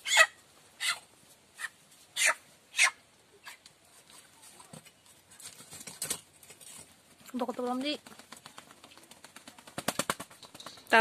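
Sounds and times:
rustling: 0:03.5 - 0:11.0.

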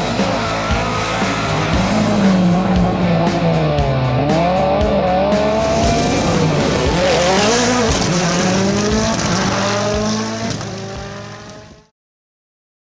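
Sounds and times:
car engine revving: 0:00.0 - 0:11.9.

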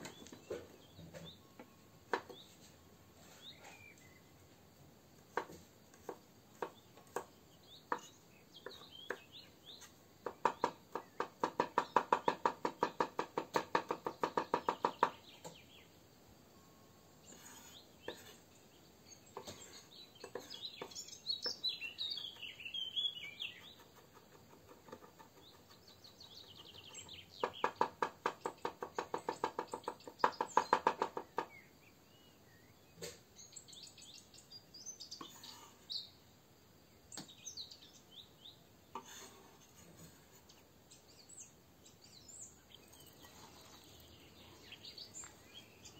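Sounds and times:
birds chirping: 0:00.0 - 0:04.6, 0:05.3 - 0:16.0, 0:16.6 - 0:45.9.

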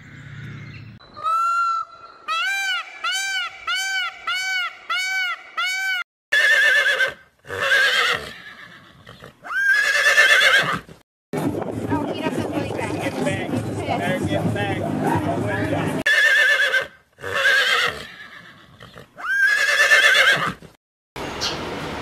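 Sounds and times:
peacock honking calls: 0:01.1 - 0:08.7
horse whinnying: 0:02.3 - 0:11.0, 0:16.1 - 0:20.8.

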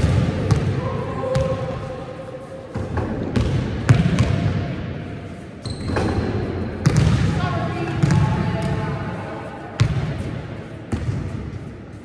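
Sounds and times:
basketballs bouncing on floor: 0:00.0 - 0:01.7, 0:02.7 - 0:04.6, 0:05.6 - 0:08.9, 0:09.8 - 0:11.5.

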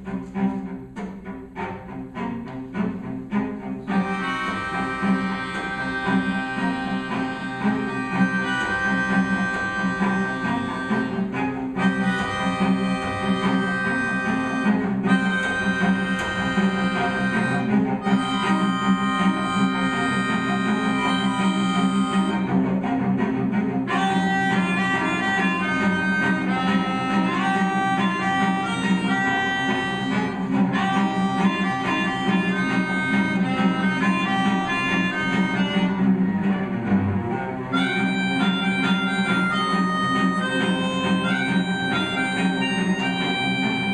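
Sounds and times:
cello playing low part: 0:00.0 - 0:43.9
melodica chords: 0:04.0 - 0:22.6, 0:23.9 - 0:36.2, 0:37.7 - 0:43.9
melodica playing quick notes: 0:11.8 - 0:22.4, 0:37.7 - 0:43.9.

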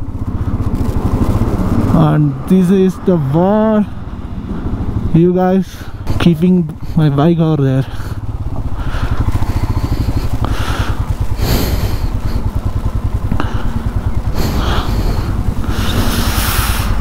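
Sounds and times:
motorcycle engine running: 0:00.0 - 0:17.0
rushing noise: 0:08.2 - 0:17.0.

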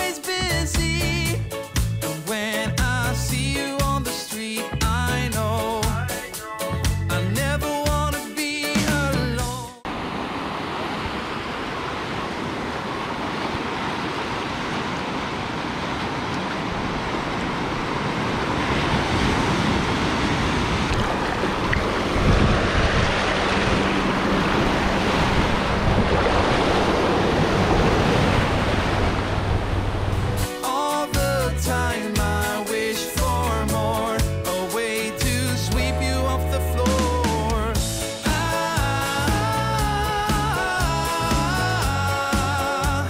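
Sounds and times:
small waves breaking on sand: 0:09.9 - 0:30.2
wind rumbling on microphone: 0:09.9 - 0:30.4.

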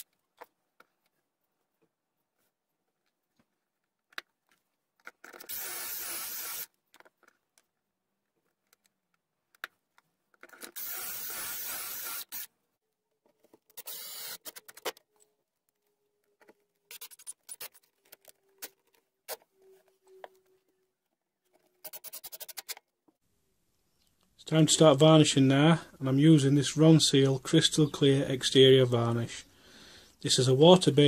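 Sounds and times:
drill driving screws: 0:05.4 - 0:06.7, 0:10.6 - 0:12.5, 0:13.8 - 0:14.6
cordless drill boring: 0:05.5 - 0:06.7, 0:10.7 - 0:12.5, 0:13.8 - 0:14.4.

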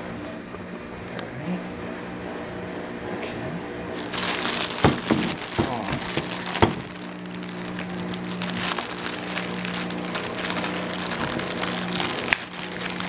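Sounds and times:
steady low hum: 0:00.0 - 0:13.0
plastic bag crinkling: 0:04.0 - 0:13.0.

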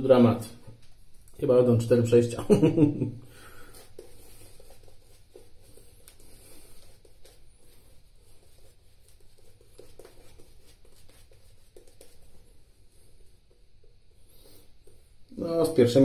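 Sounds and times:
shaving brush scratching on stubble: 0:03.7 - 0:12.7.

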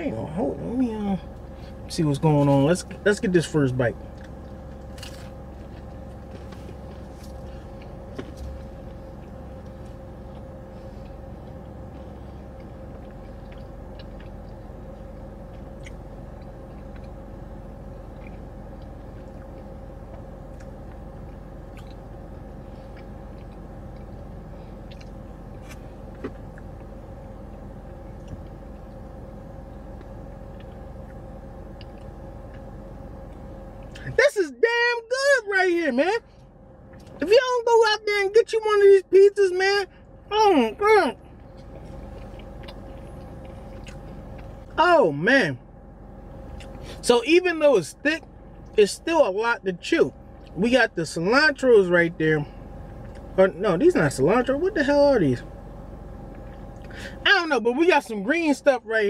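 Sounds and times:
car engine idling: 0:00.0 - 0:59.0
pizza crust crunching: 0:01.6 - 0:34.2, 0:41.3 - 0:44.8.

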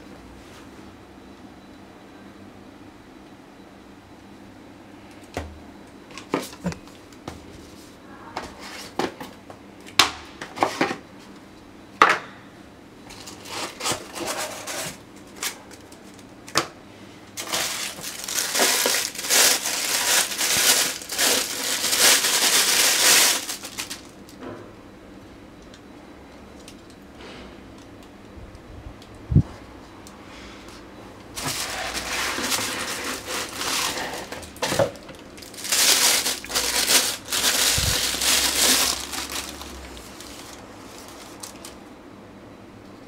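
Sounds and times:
plastic wrap crinkling: 0:17.4 - 0:24.3, 0:31.4 - 0:41.8
cardboard and foam handling: 0:31.4 - 0:41.6.

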